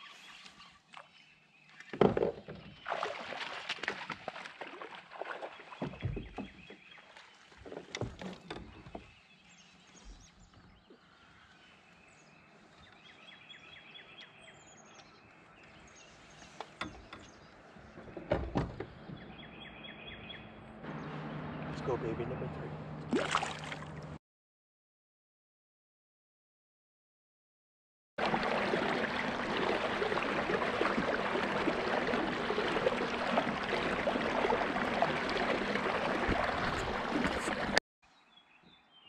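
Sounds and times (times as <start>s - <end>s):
water splashes: 1.8s - 9.2s, 20.9s - 24.2s, 28.2s - 37.8s
kayak knocks: 1.9s - 2.8s, 5.8s - 6.8s, 7.5s - 9.2s, 16.6s - 19.4s, 28.2s - 37.8s.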